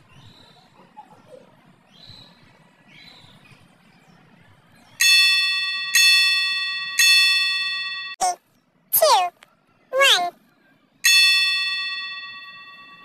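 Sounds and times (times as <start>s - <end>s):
electronic chime tones: 11.1s - 13.0s.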